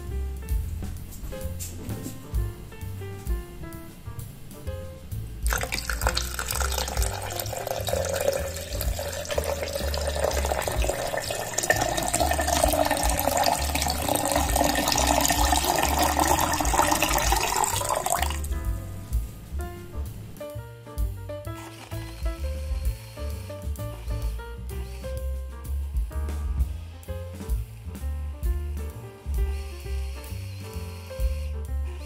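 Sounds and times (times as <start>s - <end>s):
background music: 0.0s - 32.0s
water pouring into blender jar: 5.5s - 18.5s.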